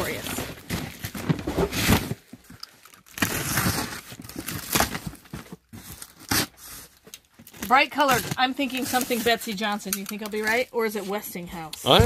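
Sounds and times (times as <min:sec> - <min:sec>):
cardboard flaps tearing open: 0:00.1 - 0:08.4
knife slitting packing tape: 0:03.1 - 0:05.2, 0:05.8 - 0:06.9.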